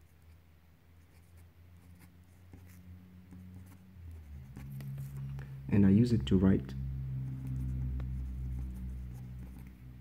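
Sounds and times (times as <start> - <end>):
pen scratching on paper: 1.0 - 5.4, 7.2 - 10.0
low hum: 1.8 - 10.0.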